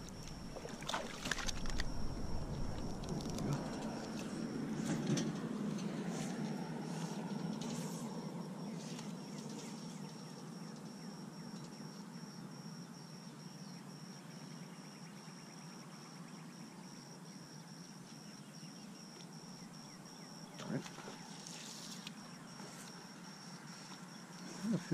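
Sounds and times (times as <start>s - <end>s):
light splashes or knocks: 0.0s - 2.1s
water noise: 0.0s - 4.6s
wind noise: 0.0s - 5.7s
insect chirping trill: 0.0s - 24.9s.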